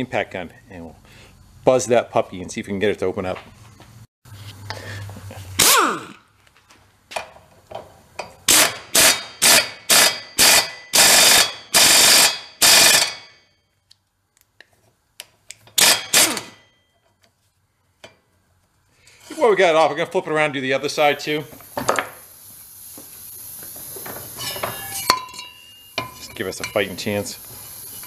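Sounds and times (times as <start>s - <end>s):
air impact wrench hammering: 5.6s - 6.2s, 8.2s - 13.4s, 15.7s - 16.7s.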